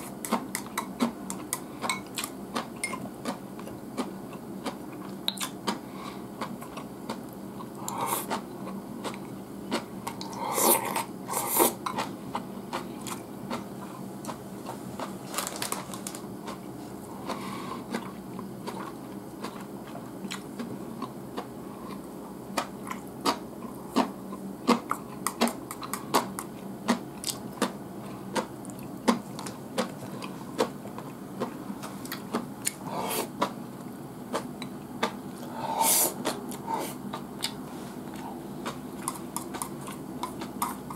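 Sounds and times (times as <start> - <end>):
chewing: 11.9 - 33.6.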